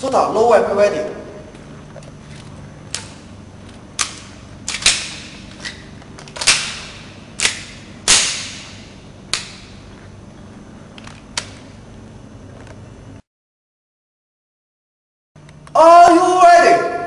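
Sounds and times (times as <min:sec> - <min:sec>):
airsoft pistol shots: 0:06.4 - 0:09.7.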